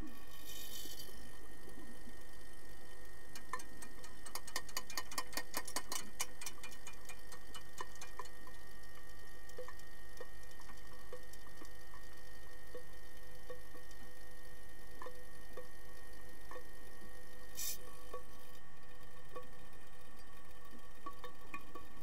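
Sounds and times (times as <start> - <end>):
faint steady hum: 0.0 - 22.0
sticks and puck clicking underwater: 3.3 - 12.1, 12.7 - 14.0, 15.0 - 16.7, 19.3 - 22.0.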